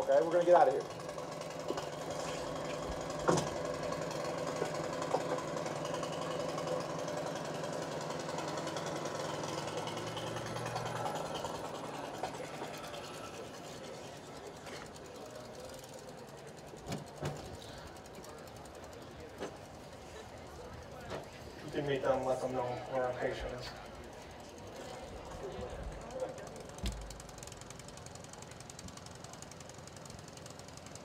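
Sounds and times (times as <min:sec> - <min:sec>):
engine humming: 0:00.0 - 0:31.0.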